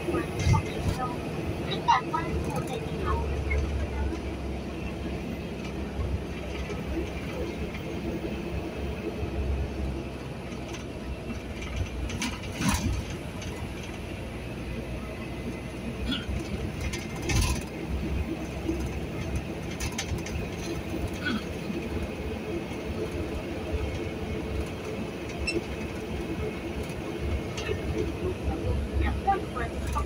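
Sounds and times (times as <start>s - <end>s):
engine and road rumble: 0.0s - 30.0s
sharp rattles: 16.5s - 17.8s.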